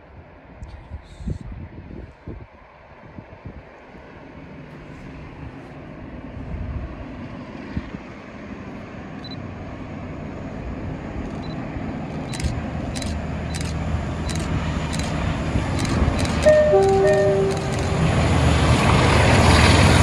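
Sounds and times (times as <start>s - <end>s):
diesel freight train rumbling: 4.0s - 20.0s.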